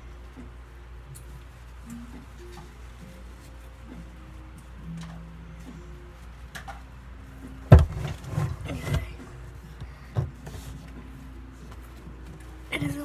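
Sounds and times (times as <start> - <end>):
scuffing and rubbing: 7.7 - 13.0.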